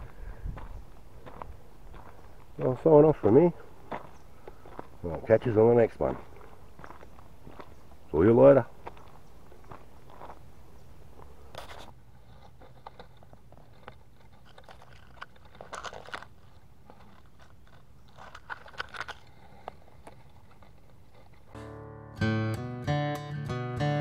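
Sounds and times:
footsteps crunching on dry leaves: 0.0s - 12.4s.

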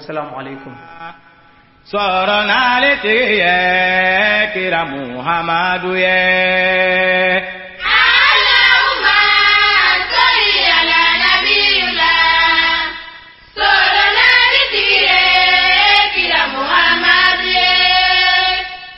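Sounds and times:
choir-like chanting: 7.8s - 18.9s.

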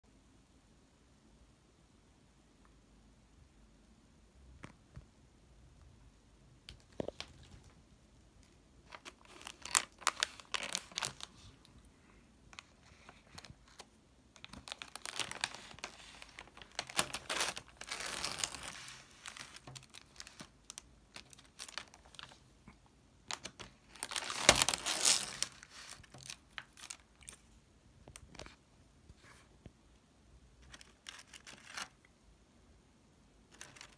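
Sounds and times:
plastic wrapper crinkling: 6.7s - 7.8s, 8.4s - 11.9s, 12.5s - 22.5s, 23.2s - 28.6s, 30.6s - 32.1s, 33.5s - 33.9s.

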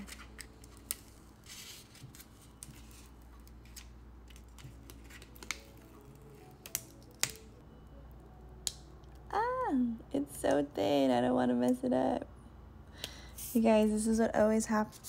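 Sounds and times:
vinyl peeling off backing sheet: 0.0s - 7.5s.

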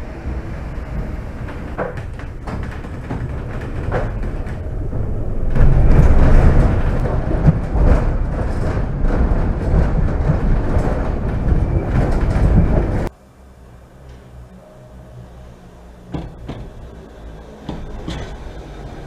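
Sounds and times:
railway car rumble: 0.0s - 19.0s
running gear clicks and knocks: 0.8s - 13.1s.

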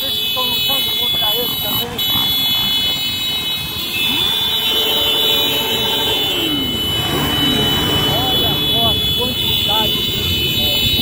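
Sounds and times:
motorcycle engines passing: 0.0s - 11.0s
steady high-pitched tone: 4.1s - 9.0s.

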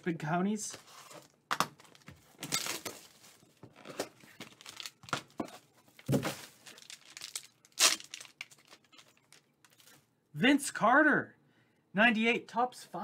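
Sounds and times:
packaging crinkling and tearing: 1.0s - 10.0s.

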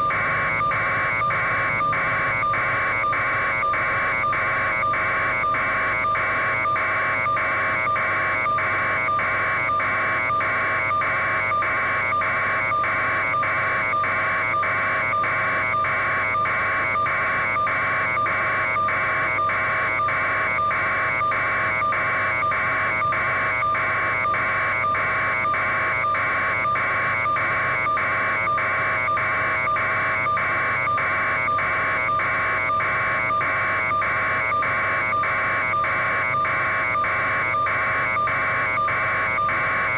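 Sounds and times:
constant hum: 0.0s - 11.1s.

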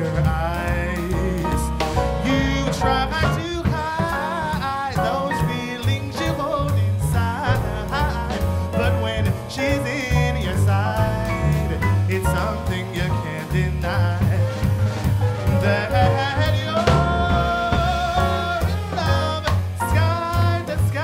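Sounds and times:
drum kit with cymbals: 0.0s - 21.0s
piano: 0.0s - 21.0s
upright bass walking: 0.0s - 21.0s
trumpet: 11.2s - 21.0s.

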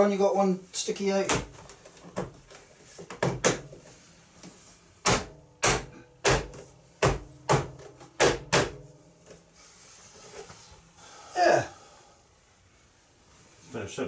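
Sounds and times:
sharp knocks on plastic: 3.0s - 3.8s, 5.0s - 8.8s.

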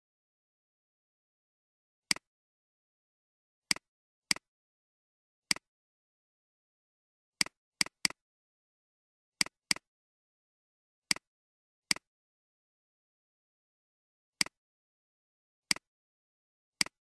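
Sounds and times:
computer mouse clicks: 3.7s - 4.5s, 9.4s - 9.9s, 16.8s - 17.0s.

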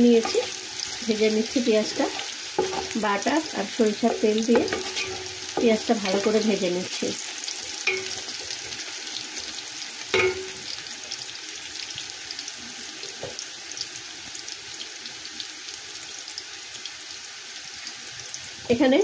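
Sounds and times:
onions sizzling in oil: 0.0s - 19.0s
wooden spatula knocking pot: 2.1s - 6.5s, 10.2s - 10.6s.

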